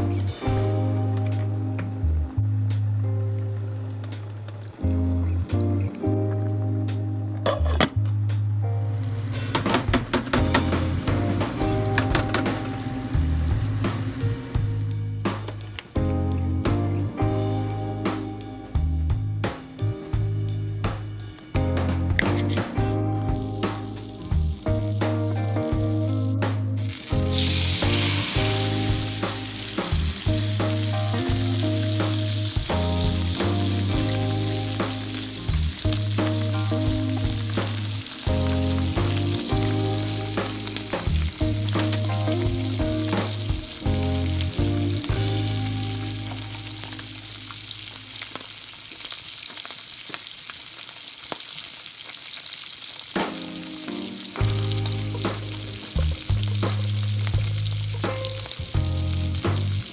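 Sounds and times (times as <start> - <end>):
background music with bass: 0.0 - 48.0, 53.4 - 59.9
fish sizzling in butter: 23.4 - 59.9.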